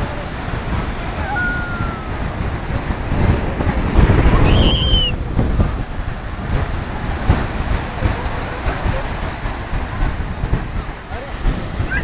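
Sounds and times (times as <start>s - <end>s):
sea waves breaking: 0.0s - 12.0s
wind buffeting microphone: 0.0s - 12.0s
high whistle-like tone: 4.4s - 5.2s.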